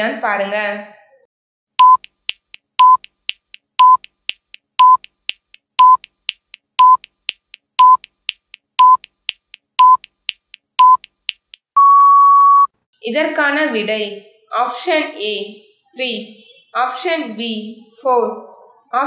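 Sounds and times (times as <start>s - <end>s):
short beeps: 1.8s - 2.1s, 2.8s - 3.1s, 3.8s - 4.1s, 4.8s - 5.1s, 6.8s - 7.1s, 7.8s - 8.1s, 8.8s - 9.1s, 9.8s - 10.1s, 11.8s - 12.7s.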